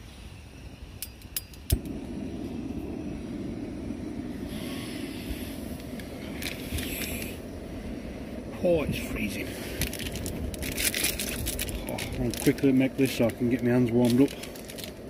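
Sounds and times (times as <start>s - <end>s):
stove igniter clicks: 1.0s - 2.0s
burner igniting pop: 1.2s - 3.0s
gas flame rushing: 1.6s - 15.0s.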